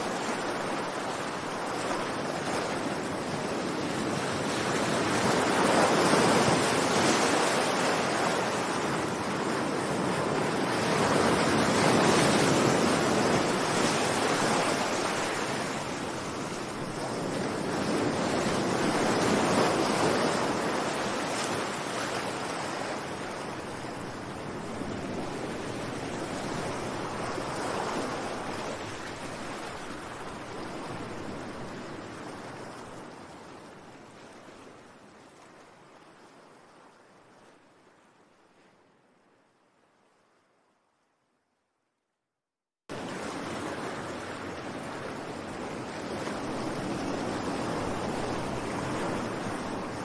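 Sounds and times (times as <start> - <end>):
waves breaking and washing in: 0.0 - 41.4, 42.9 - 50.0.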